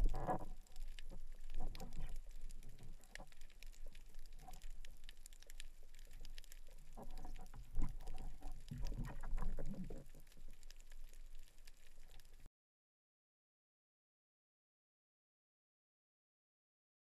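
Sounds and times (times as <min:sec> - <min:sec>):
low underwater rumble: 0:00.0 - 0:12.4
underwater crackle of fine clicks: 0:00.0 - 0:12.5.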